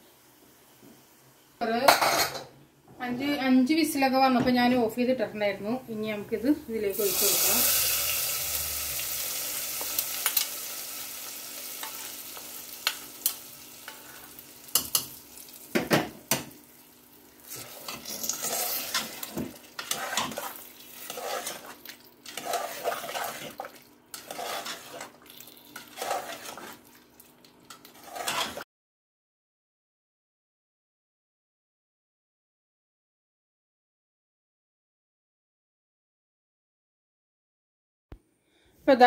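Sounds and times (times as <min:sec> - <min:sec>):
hot oil sizzling: 0:06.9 - 0:28.6
spoon scraping thick curry: 0:17.5 - 0:27.0, 0:27.7 - 0:28.6.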